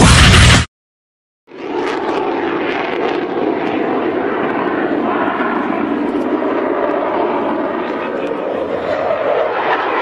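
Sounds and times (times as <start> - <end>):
fighter jet engine rush: 1.5 - 10.0.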